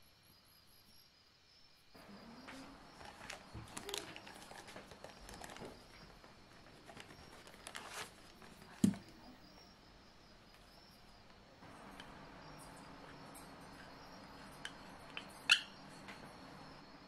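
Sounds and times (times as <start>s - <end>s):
cardboard box rustling: 2.9s - 5.8s, 6.6s - 9.0s.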